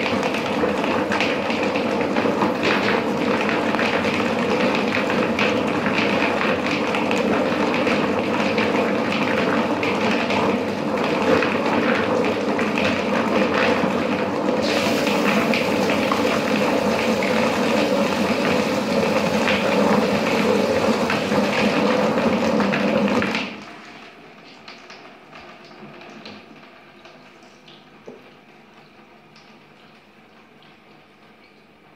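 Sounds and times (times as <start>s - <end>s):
poultry plucker machine running: 0.0s - 23.6s
hose spraying water: 14.6s - 22.2s.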